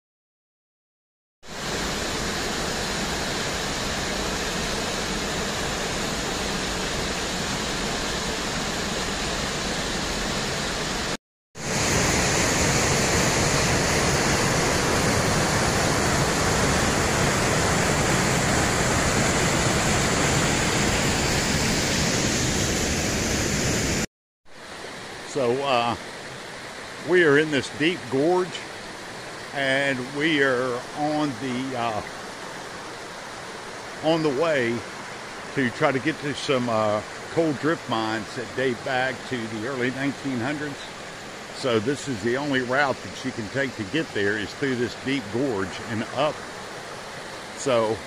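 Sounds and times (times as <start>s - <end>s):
whitewater cascading over rocks: 1.5s - 24.0s, 24.6s - 48.0s
small waterfall pouring into pool: 27.1s - 48.0s.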